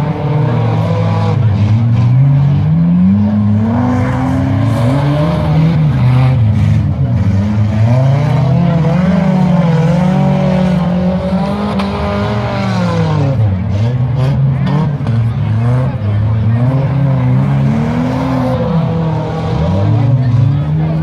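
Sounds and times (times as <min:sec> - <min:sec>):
racing engines revving: 0:00.0 - 0:21.0.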